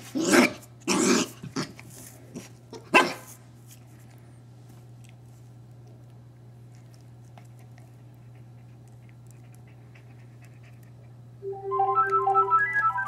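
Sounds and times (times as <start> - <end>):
puppy gnawing a bone: 0.0 - 11.4
low steady hum: 0.0 - 13.0
bright music of short notes: 11.4 - 13.0.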